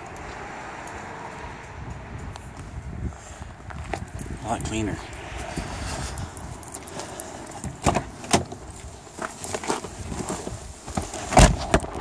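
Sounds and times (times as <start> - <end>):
car door shutting: 7.6 - 8.6
clicks and knocks in a car: 7.6 - 12.0.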